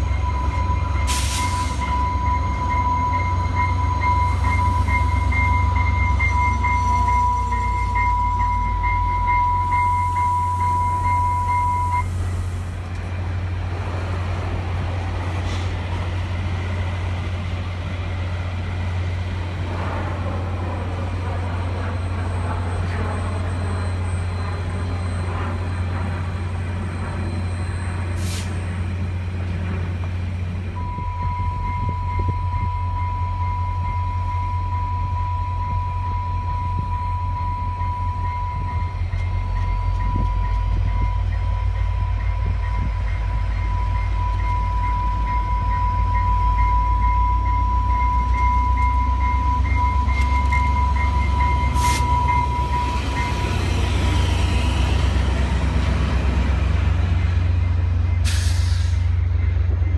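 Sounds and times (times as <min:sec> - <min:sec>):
steady high tone: 0:00.0 - 0:12.4, 0:30.8 - 0:58.3
diesel locomotive engine hum: 0:00.0 - 0:59.9
freight train rolling past: 0:00.0 - 0:59.9.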